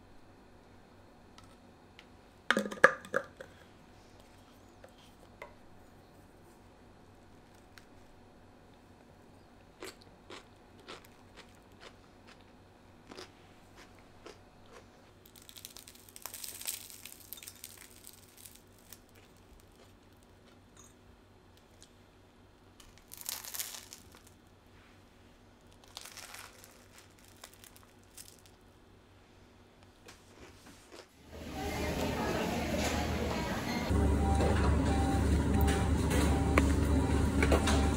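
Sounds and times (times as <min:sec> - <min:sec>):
toast crust crunching: 0:09.8 - 0:20.6, 0:22.8 - 0:24.5, 0:25.6 - 0:28.6.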